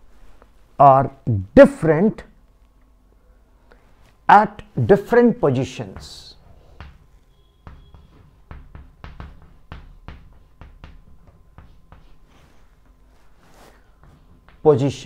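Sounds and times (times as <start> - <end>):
chalk writing on blackboard: 6.0 - 14.8.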